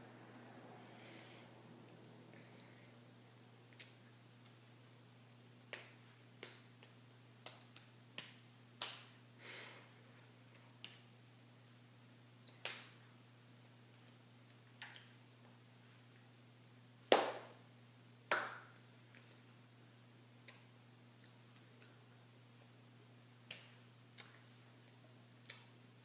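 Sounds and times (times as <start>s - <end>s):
low steady hum: 0.0s - 26.0s
hands slapping and clapping: 5.7s - 9.2s, 12.6s - 13.0s, 17.1s - 17.6s, 18.3s - 18.8s.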